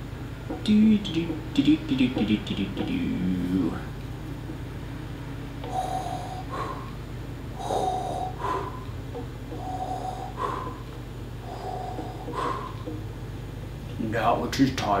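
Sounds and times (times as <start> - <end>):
respirator breathing: 0.0 - 14.2.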